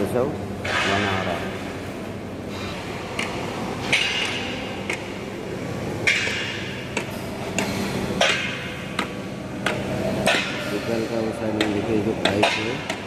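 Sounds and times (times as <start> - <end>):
steady low hum: 0.0 - 13.0
hammer striking steel: 6.0 - 6.7, 9.6 - 11.0, 11.6 - 13.0.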